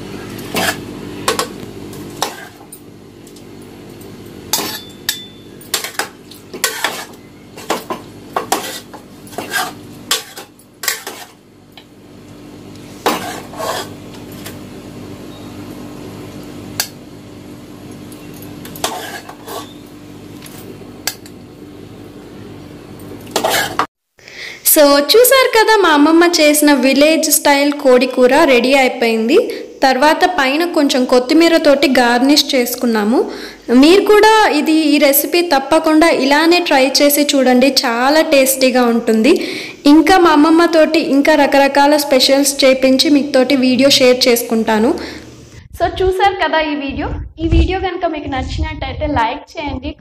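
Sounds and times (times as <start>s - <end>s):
steady low hum: 26.4s - 50.0s.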